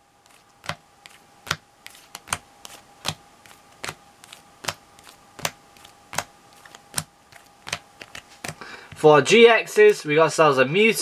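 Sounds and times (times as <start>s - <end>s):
faint steady hum: 0.0s - 11.0s
trading cards snapping: 0.6s - 8.6s.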